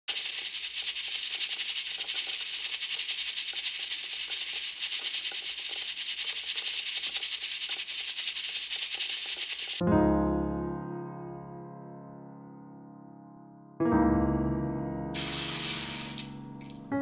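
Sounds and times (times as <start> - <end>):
steam hissing from rice cooker: 0.1 - 8.0
fast fine rattle: 0.1 - 9.8.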